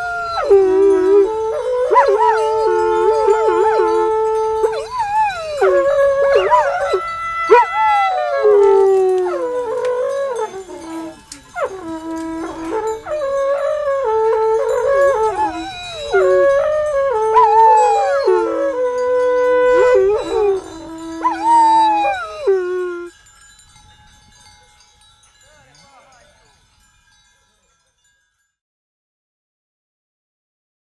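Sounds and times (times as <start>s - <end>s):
long horn playing melody: 0.0s - 23.1s.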